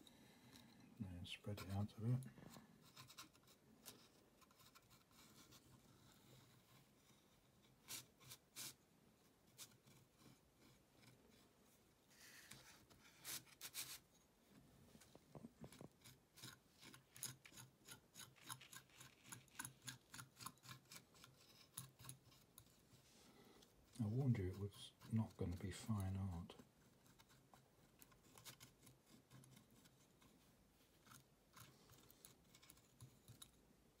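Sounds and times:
palette knife scraping paint: 1.5 - 11.5, 15.5 - 34.0.

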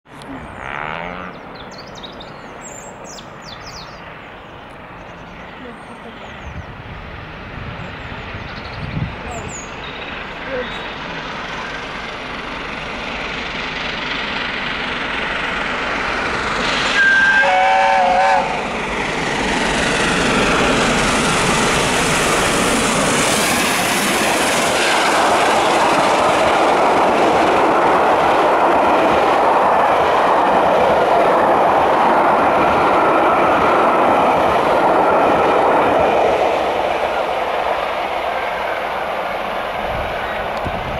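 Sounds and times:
train wheels rolling on rails: 1.4 - 40.9
steam locomotive whistle: 16.7 - 18.7.

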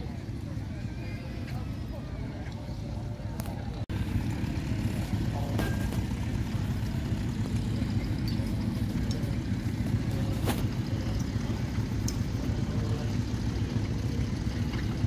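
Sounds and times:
tractor engine rumbling: 0.0 - 15.0.

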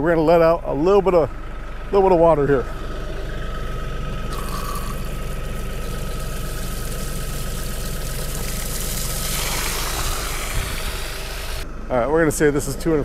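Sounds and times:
tractor diesel engine idling: 0.0 - 13.0
water gushing from valve: 4.3 - 11.6.

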